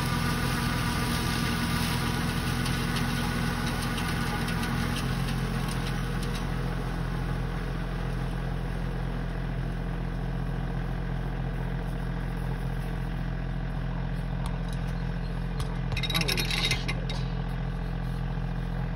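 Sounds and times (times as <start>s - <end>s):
tractor diesel engine running: 0.0s - 18.9s.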